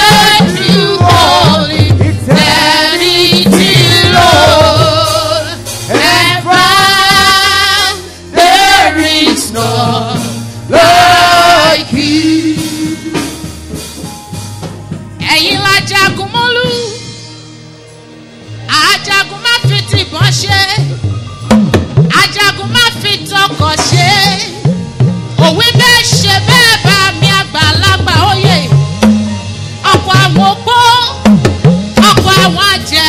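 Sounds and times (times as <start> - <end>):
live gospel music: 0.0 - 33.0.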